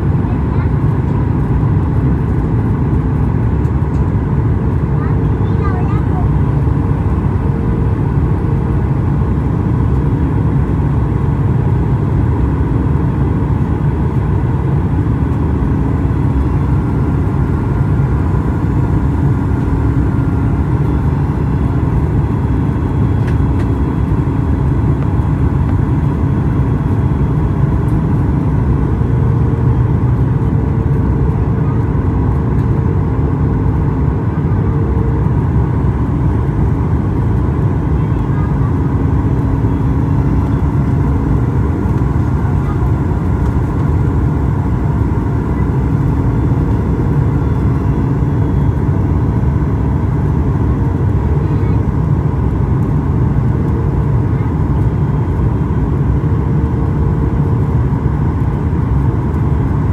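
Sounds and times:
airplane cabin rumble: 0.0 - 59.9
faint humming tones: 0.0 - 59.9.

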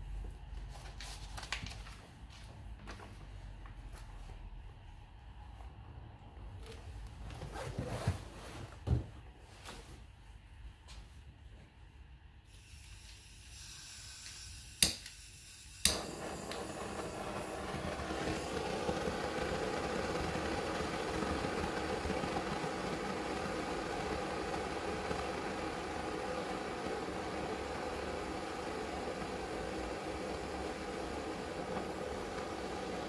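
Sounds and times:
torch flame hissing: 15.3 - 33.0
blowtorch igniter clicks: 15.8 - 17.1.

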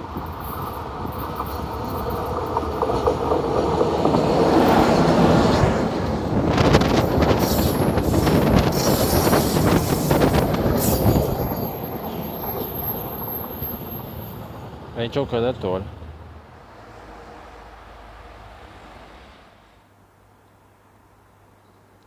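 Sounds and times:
wheels clattering over rail joints: 0.0 - 9.6
passing train rumble: 0.0 - 20.2.

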